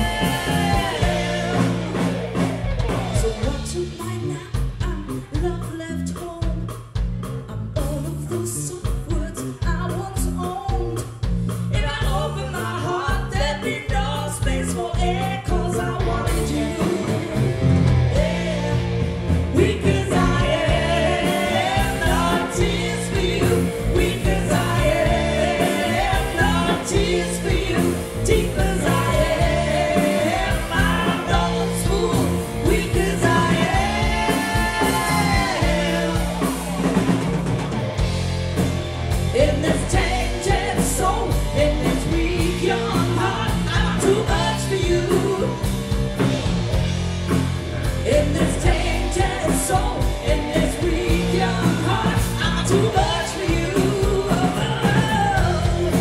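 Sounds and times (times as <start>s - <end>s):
woman singing backing vocals: 0.0s - 2.0s, 19.5s - 36.6s, 39.4s - 45.6s, 48.1s - 56.0s
woman singing lead: 0.0s - 6.8s, 11.7s - 37.6s, 39.3s - 46.0s, 48.0s - 56.0s
live rock band playing: 0.0s - 56.0s.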